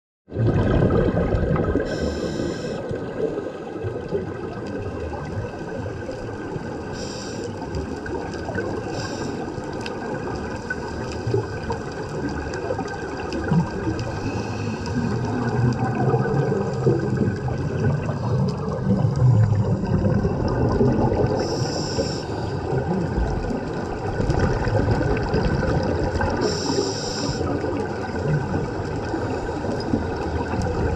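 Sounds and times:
underwater bubbles gurgling: 0.3 - 30.9
diver breathing through regulator: 1.8 - 2.9, 7.0 - 7.6, 8.9 - 9.5, 14.1 - 15.4, 21.3 - 22.7, 26.4 - 27.5
regulator hiss: 1.9 - 2.8, 6.9 - 7.6, 8.9 - 9.5, 21.4 - 22.6, 26.4 - 27.5.

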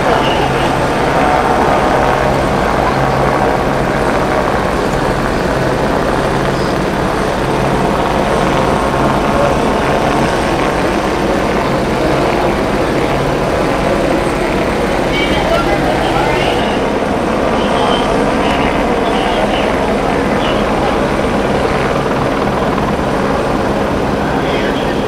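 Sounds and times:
engine drone: 0.0 - 25.0.

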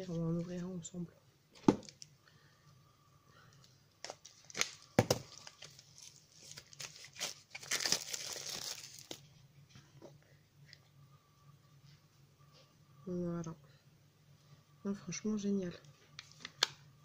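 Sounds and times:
wrapping tearing and crinkling: 4.0 - 9.2.

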